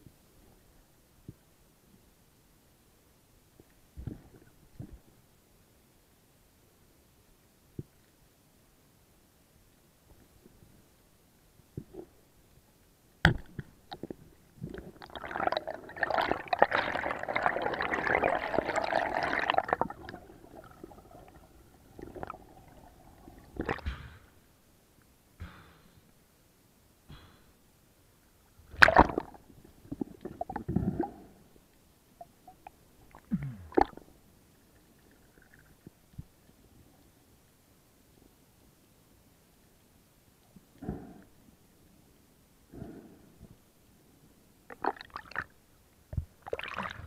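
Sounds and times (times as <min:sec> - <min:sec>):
underwater bubbling water: 0:13.3 - 0:23.8, 0:28.7 - 0:31.5, 0:32.2 - 0:36.5
splashes: 0:14.8 - 0:23.9, 0:28.7 - 0:29.4.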